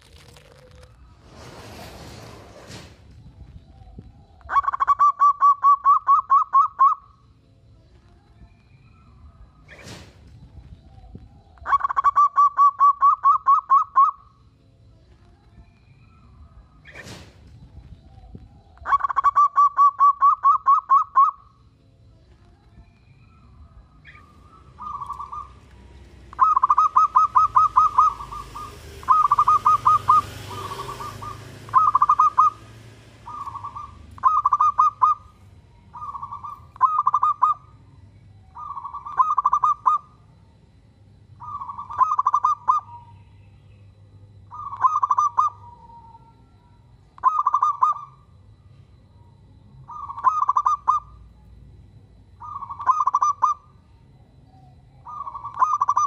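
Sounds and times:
dove cooing: 0:04.4 - 0:07.1, 0:11.5 - 0:14.3, 0:18.7 - 0:21.5, 0:24.0 - 0:37.8, 0:38.5 - 0:40.1, 0:41.4 - 0:43.1, 0:44.5 - 0:46.4, 0:47.2 - 0:48.1, 0:49.9 - 0:51.2, 0:52.4 - 0:53.6, 0:55.0 - 0:56.0.

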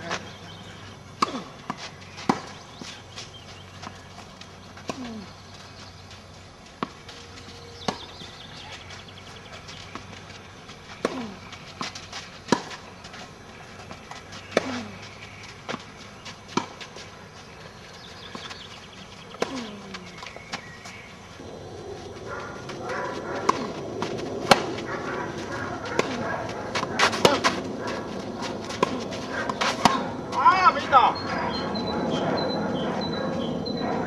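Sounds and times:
tennis ball hit by racket: 0:01.2 - 0:02.9, 0:11.0 - 0:12.8, 0:23.1 - 0:30.2
ball bouncing on clay court: 0:01.2 - 0:21.0, 0:22.0 - 0:33.4.

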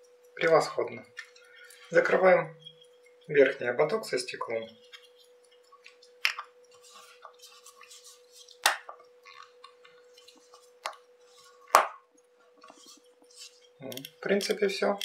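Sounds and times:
faint steady hum: 0:00.0 - 0:15.0.

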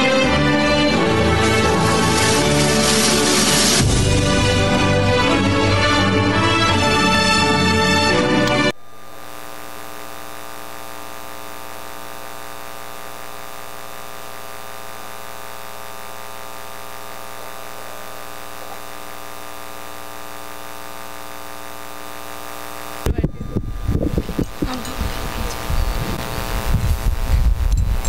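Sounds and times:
electrical mains hum: 0:06.2 - 0:28.0.

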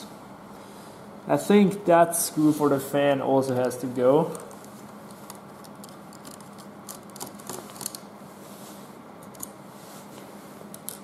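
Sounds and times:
steady low hiss: 0:00.0 - 0:11.0.

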